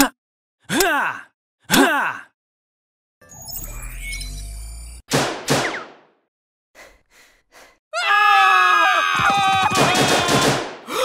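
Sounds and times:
machine-gun fire: 5.1 - 6.0, 9.7 - 10.8
gunshots: 5.1 - 6.1, 9.5 - 10.9
cartoon-like screams: 8.0 - 10.5.

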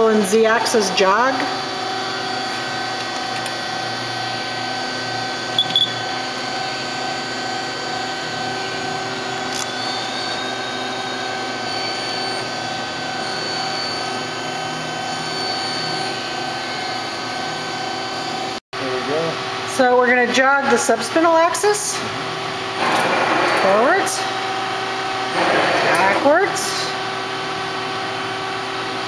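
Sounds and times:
lathe machine whine: 22.4 - 29.0.

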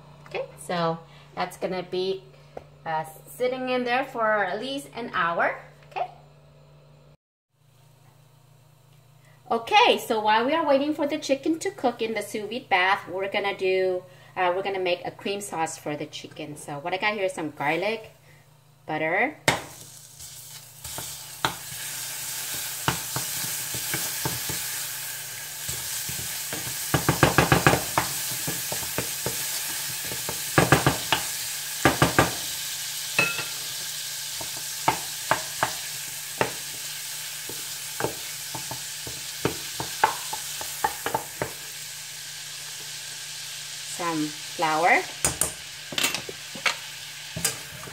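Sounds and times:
butter and garlic sizzling in a pan: 19.4 - 47.9
wooden spoon knocking against pan: 26.6 - 29.4.

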